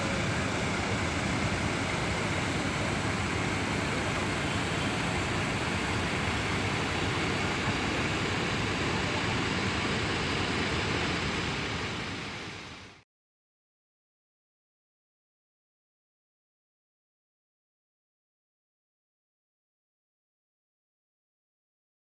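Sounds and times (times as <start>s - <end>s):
bus engines running: 0.0s - 13.0s
traffic: 0.0s - 13.0s.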